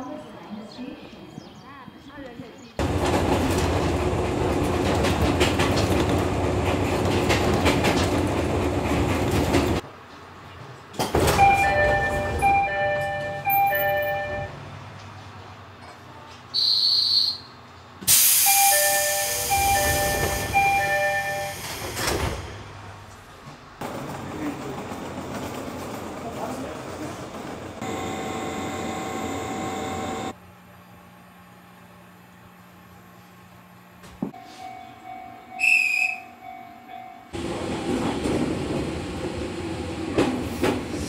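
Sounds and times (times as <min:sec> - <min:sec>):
train running noise: 0:02.8 - 0:16.5, 0:17.7 - 0:30.4, 0:37.3 - 0:41.0
electronic door chime: 0:11.4 - 0:14.5, 0:18.5 - 0:21.5
high beep: 0:11.4 - 0:14.5.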